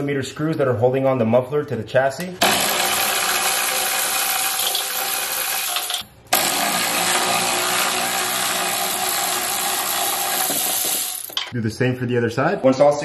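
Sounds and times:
cordless power tool running: 2.4 - 11.3.

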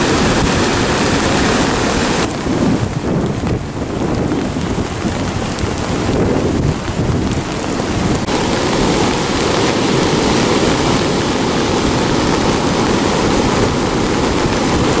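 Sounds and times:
heavy surf breaking: 0.0 - 15.0
wind buffeting microphone: 0.0 - 15.0.

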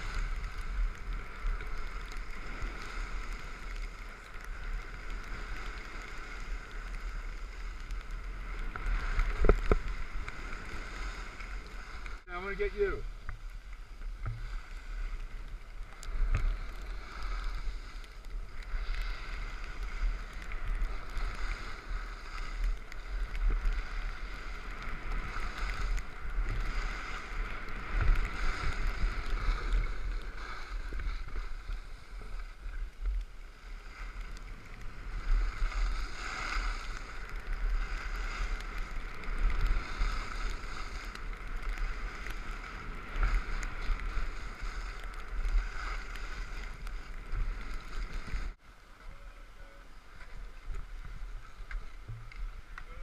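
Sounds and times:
skis scraping over snow: 0.0 - 53.0.

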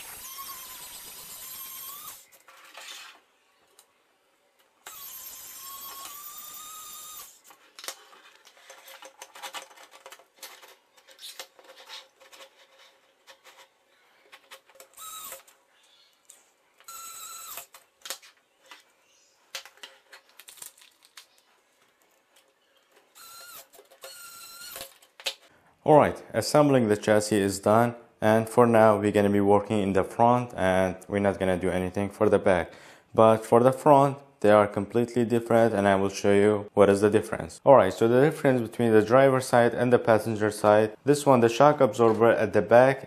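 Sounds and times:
electric screwdriver whining: 0.0 - 2.3, 4.8 - 7.5, 14.9 - 15.5, 16.8 - 17.8, 23.2 - 24.9
plastic parts clicking and knocking: 7.4 - 15.6, 17.6 - 25.5.

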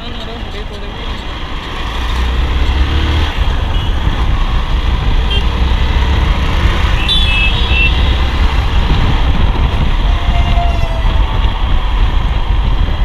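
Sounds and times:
motorcycle engine rumble: 0.0 - 13.0
wind noise: 0.0 - 13.0
short high-pitched beeps: 7.0 - 8.1.

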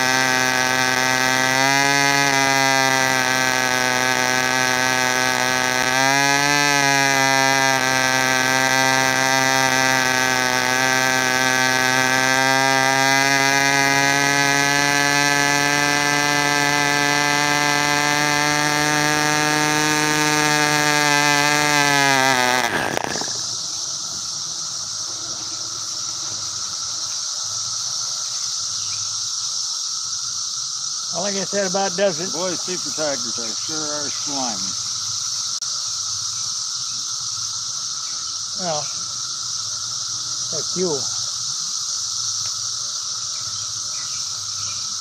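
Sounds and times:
model airplane engine running: 0.0 - 27.2, 31.1 - 34.9, 38.6 - 39.0, 40.2 - 41.3.

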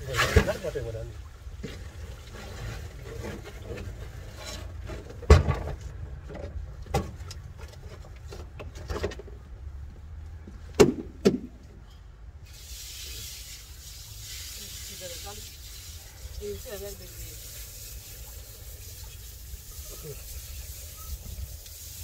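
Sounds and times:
water spraying hiss: 12.4 - 22.0.

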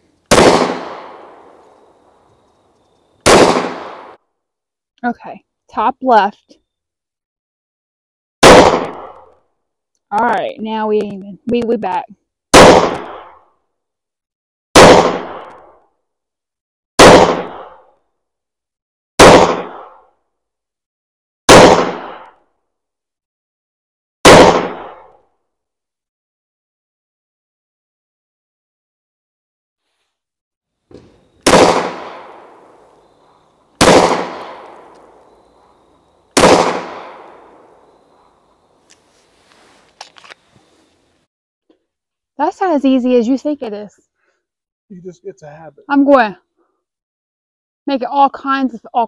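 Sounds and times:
pistol shots echoing: 0.3 - 1.6, 3.2 - 4.2, 8.4 - 9.1, 12.5 - 13.3, 14.8 - 15.5, 17.0 - 17.8, 19.2 - 20.0, 21.5 - 22.2, 24.2 - 25.0, 31.4 - 35.6, 36.4 - 38.0.

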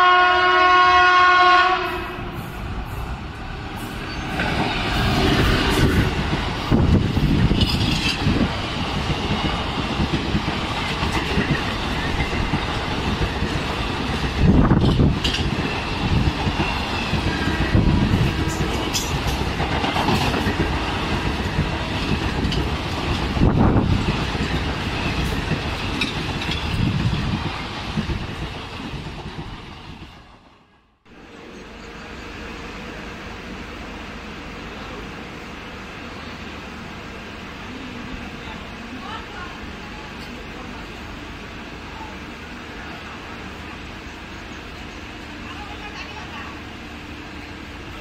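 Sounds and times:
train rumbling past: 0.0 - 48.0
clickety-clack of train wheels: 3.8 - 30.6.

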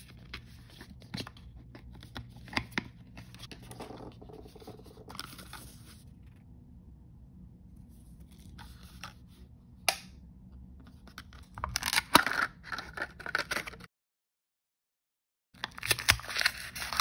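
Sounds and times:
paper crinkling and tearing: 15.6 - 17.0.

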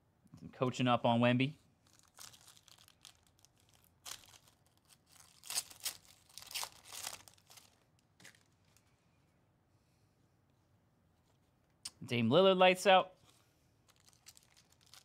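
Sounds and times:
foil pack tearing and crinkling: 1.9 - 8.5, 13.9 - 15.0.

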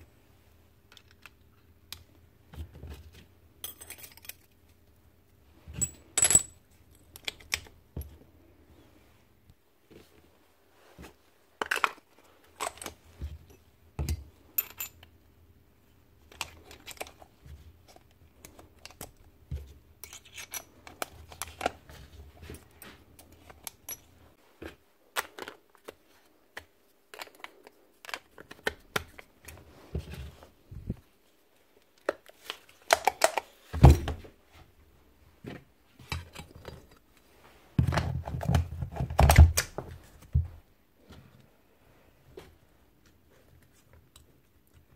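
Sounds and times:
hand tools and metal parts clinking: 3.6 - 4.6, 12.6 - 15.1, 20.0 - 21.7.

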